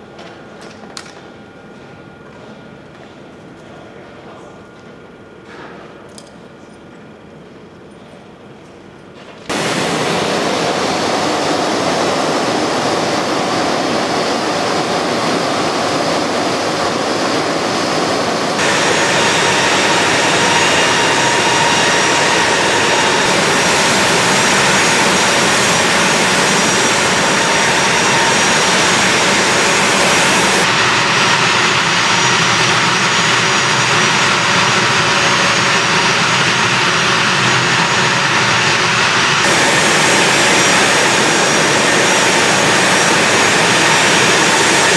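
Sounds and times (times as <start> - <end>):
jet engines running: 9.4 - 44.9
high whine: 9.5 - 44.9.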